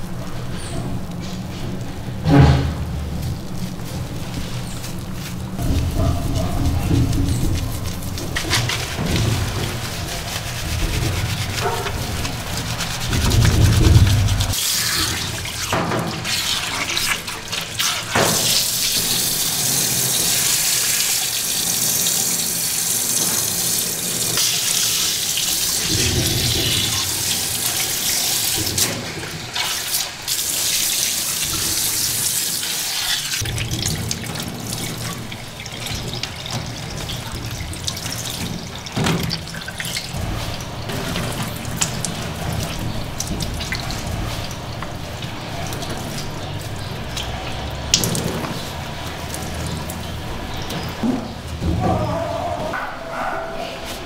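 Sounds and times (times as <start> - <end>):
water spraying from a hose: 2.5 - 51.0
low rumble: 13.1 - 14.6.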